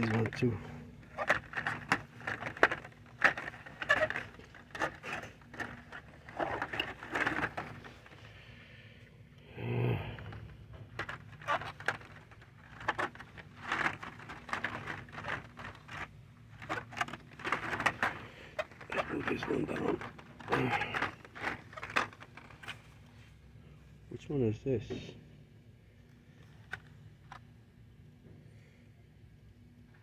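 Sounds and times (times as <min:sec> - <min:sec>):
plastic packs clacking and rustling: 0:00.0 - 0:08.4, 0:10.2 - 0:23.1
steady low hum: 0:00.0 - 0:30.0.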